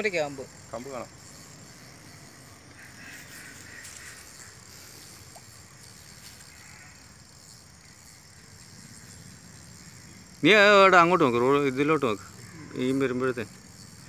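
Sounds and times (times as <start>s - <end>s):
insects chirring: 0.0s - 14.0s.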